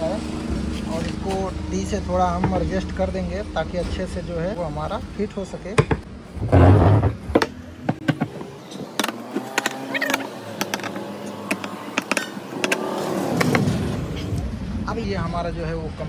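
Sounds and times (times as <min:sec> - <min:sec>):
heavy scraping thud: 0:06.4 - 0:08.3.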